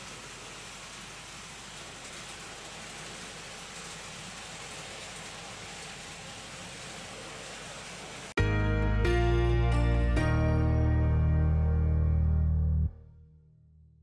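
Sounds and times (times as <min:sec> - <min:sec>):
background music: 0:08.4 - 0:13.3.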